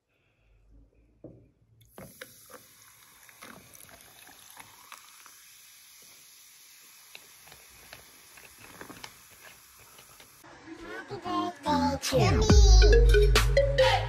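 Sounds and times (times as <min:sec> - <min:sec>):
cola fizzing: 0:01.8 - 0:10.4
ice cubes cracking: 0:06.8 - 0:10.4.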